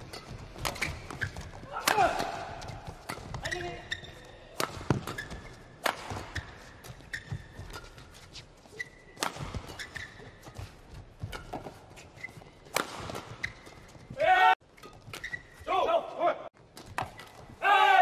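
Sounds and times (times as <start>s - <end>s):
shoes squeaking on court: 0.0s - 1.7s, 2.4s - 15.7s, 16.6s - 17.6s
rackets hitting shuttlecock: 0.0s - 3.9s, 4.5s - 8.0s, 8.8s - 11.8s, 12.6s - 13.9s.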